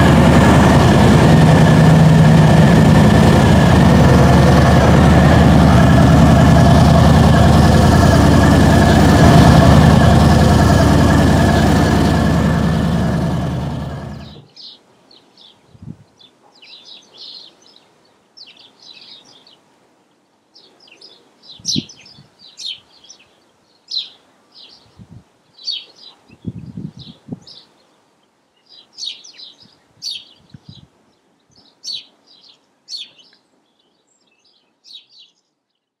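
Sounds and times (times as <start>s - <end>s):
low thumps: 0.0s - 14.4s.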